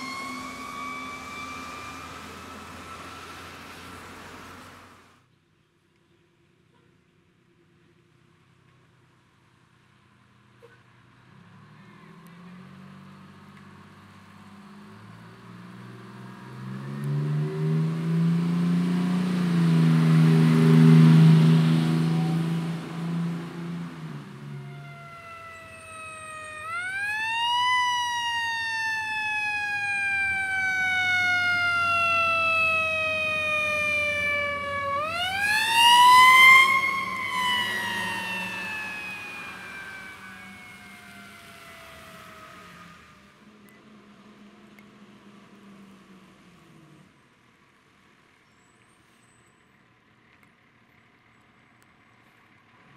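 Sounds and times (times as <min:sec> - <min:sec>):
fire engine siren winding up: 0:00.0 - 0:04.6, 0:19.2 - 0:43.4
fire engine revving: 0:00.0 - 0:05.2, 0:11.5 - 0:47.1.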